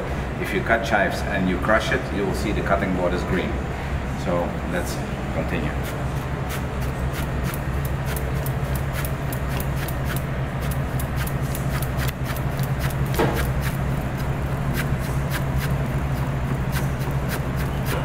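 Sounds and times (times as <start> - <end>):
steady low hum: 0.0 - 18.0
knife slicing on cutting board: 5.8 - 18.0.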